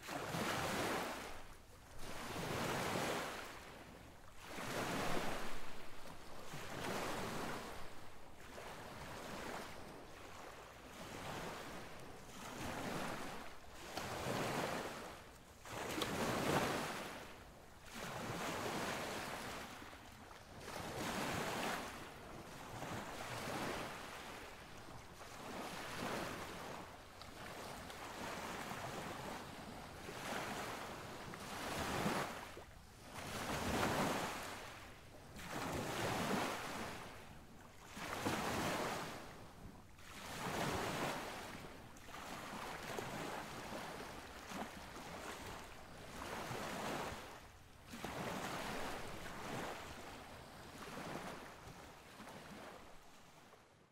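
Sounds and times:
sea waves washing in: 0.0 - 39.4.

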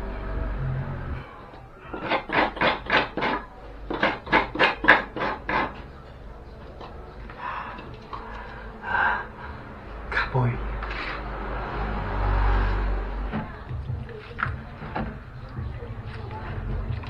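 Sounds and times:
coconut grating strokes: 1.9 - 5.8, 10.8 - 11.5.

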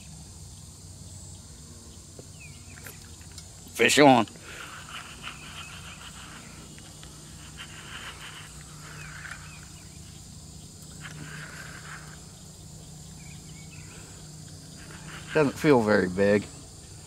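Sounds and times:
insects: 0.0 - 17.0
steady low hum: 0.0 - 17.0
short chirping calls: 7.4 - 15.6.

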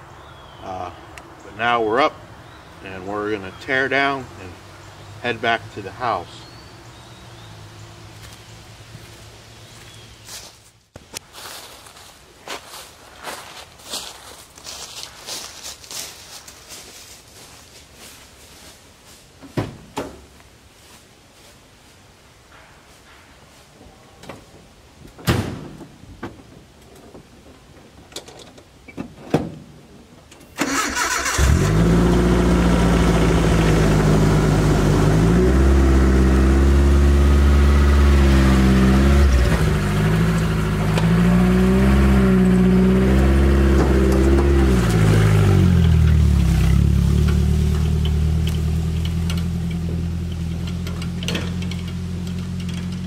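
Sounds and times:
truck engine starting and revving: 30.6 - 53.0.

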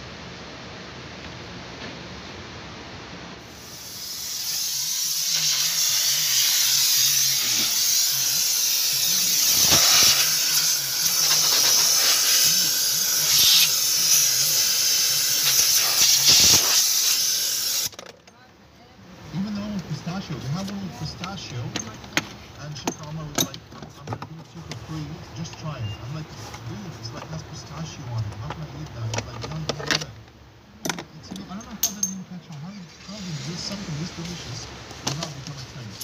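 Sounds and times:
air nozzle hissing: 3.4 - 17.9.

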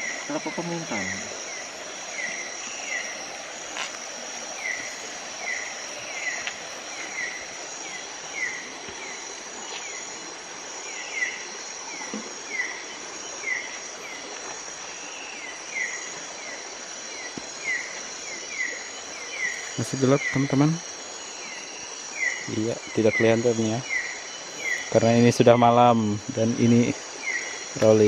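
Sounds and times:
insect drone: 0.0 - 28.0.

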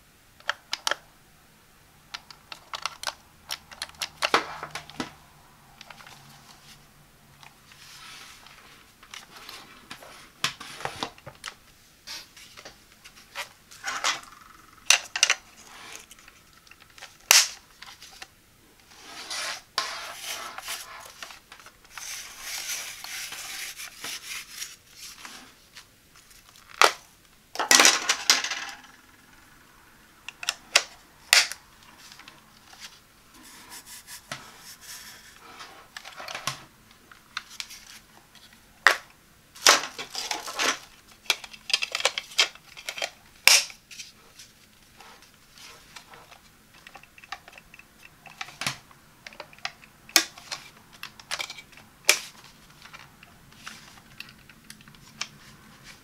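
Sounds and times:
plastic rubbing scrapes: 18.9 - 25.7.

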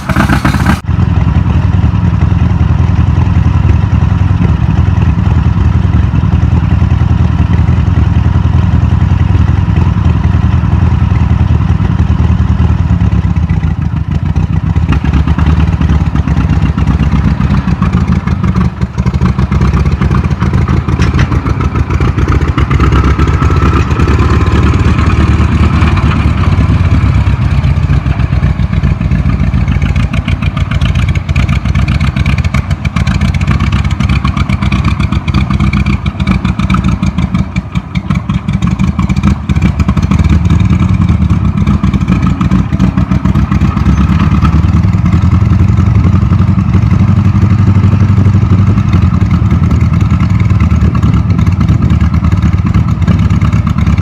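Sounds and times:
tractor engine under load: 0.0 - 54.0.

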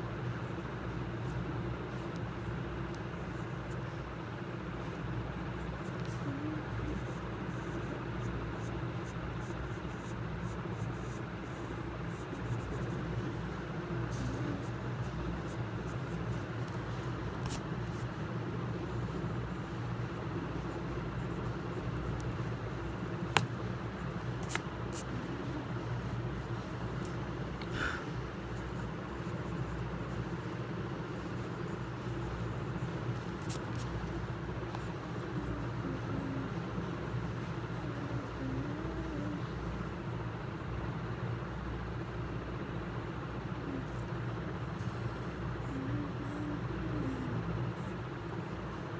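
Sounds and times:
low background hum: 0.0 - 48.9
pencil scratching on paper: 4.9 - 27.4, 28.2 - 39.3.

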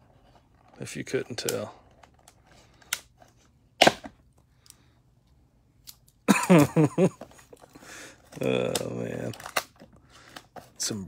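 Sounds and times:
plastic cracking: 8.3 - 10.6.

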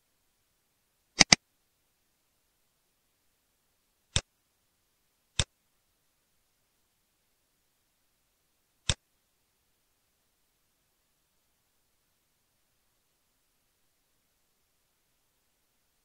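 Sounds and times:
mouse button clicks: 1.2 - 1.4.

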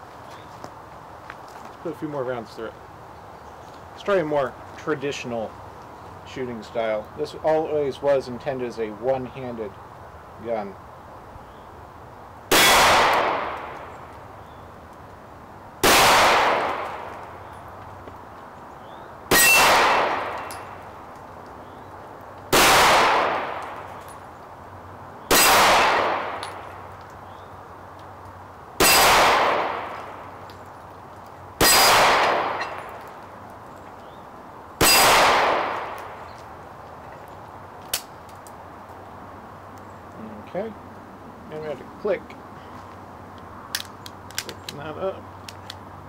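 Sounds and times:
pistol shots: 12.5 - 13.8, 15.8 - 17.2, 19.3 - 20.8, 22.5 - 23.8, 25.3 - 26.6, 28.8 - 30.2, 31.6 - 33.0, 34.8 - 36.2.

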